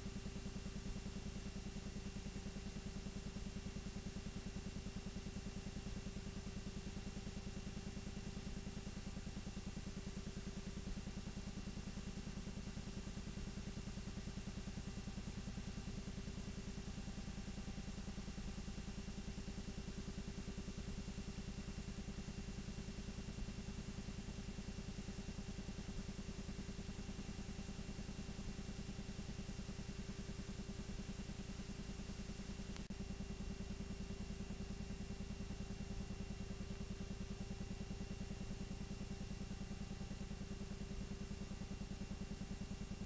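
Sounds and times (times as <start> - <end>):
projector hum: 28.4 - 33.1.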